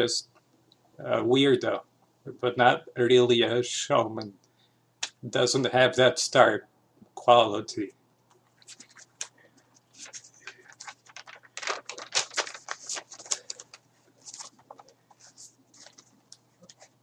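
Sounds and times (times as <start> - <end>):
hands clicking and rustling at desk: 8.2 - 17.0.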